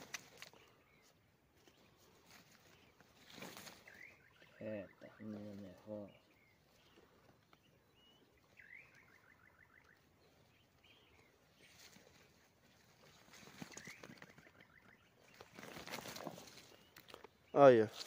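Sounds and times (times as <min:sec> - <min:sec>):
wire-mesh trap rustling and clicking: 0:00.0 - 0:00.7
faint bird chirps: 0:00.0 - 0:18.0.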